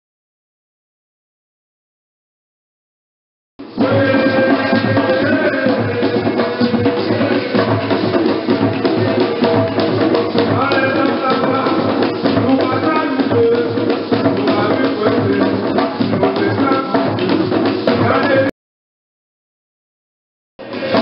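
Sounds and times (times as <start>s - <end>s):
hand drums playing: 3.6s - 18.5s, 20.6s - 21.0s
voices singing: 3.6s - 18.5s, 20.6s - 21.0s.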